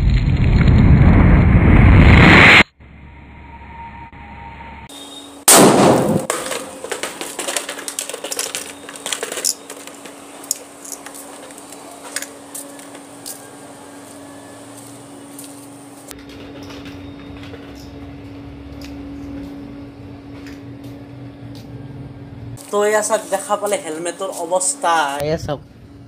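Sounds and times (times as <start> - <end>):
firecracker bang: 5.5 - 7.7
helmet and debris clattering on concrete: 6.2 - 11.6.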